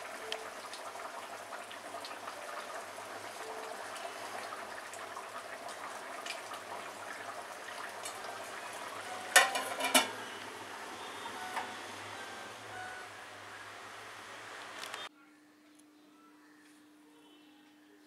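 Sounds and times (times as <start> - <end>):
curry simmering in a pan: 0.0 - 12.6
metal lid clanking onto pan: 9.3 - 10.2.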